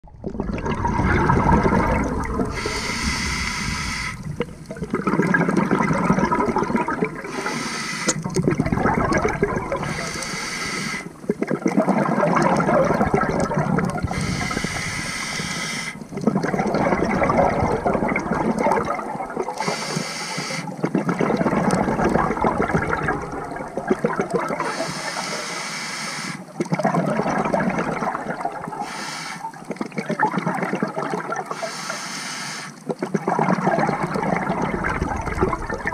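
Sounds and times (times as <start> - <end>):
bubbling exhale underwater: 0.0 - 25.3, 26.5 - 28.8, 29.4 - 31.6, 32.8 - 35.9
hissing regulator inhale: 2.5 - 4.3, 7.2 - 8.2, 9.8 - 11.2, 14.0 - 16.1, 19.6 - 20.7, 24.6 - 26.4, 28.8 - 29.6, 31.5 - 32.8.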